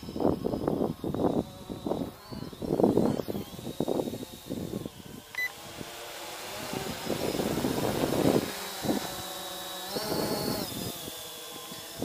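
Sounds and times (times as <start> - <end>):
quadcopter motors humming: 0.0 - 12.0
wind on microphone: 0.0 - 12.0.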